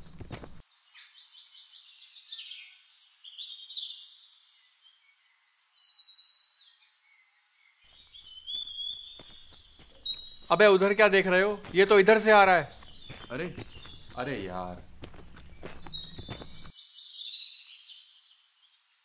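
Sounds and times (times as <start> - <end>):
birds singing and chirping: 0.0 - 19.0.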